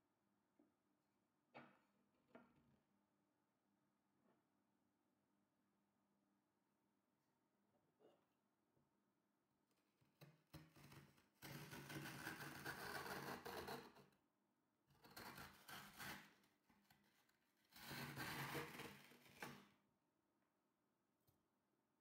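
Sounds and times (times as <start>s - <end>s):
metal scoop scraping frozen mixture: 10.8s - 13.9s, 17.7s - 19.6s.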